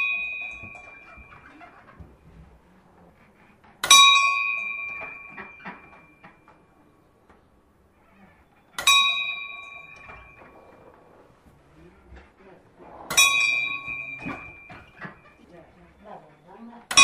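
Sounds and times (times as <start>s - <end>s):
metal bell ringing: 3.9s - 5.5s, 8.8s - 10.6s, 13.1s - 15.0s.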